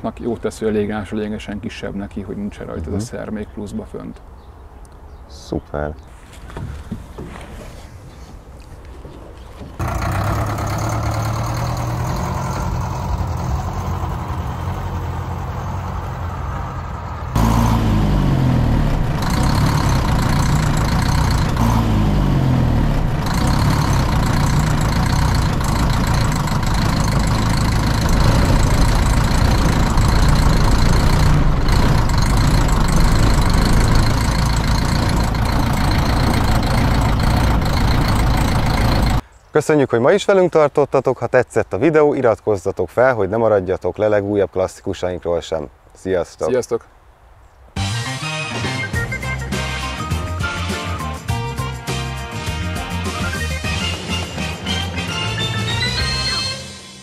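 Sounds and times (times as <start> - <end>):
fire truck diesel engine running: 9.8 - 39.2.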